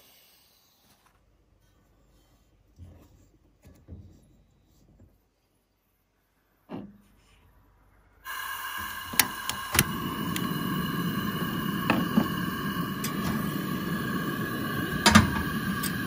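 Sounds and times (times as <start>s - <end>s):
gas stove burner hissing: 8.2s - 16.0s.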